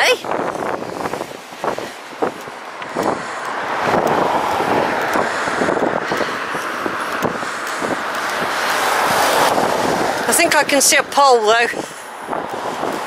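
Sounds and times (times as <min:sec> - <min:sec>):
car driving past: 0:02.6 - 0:10.3.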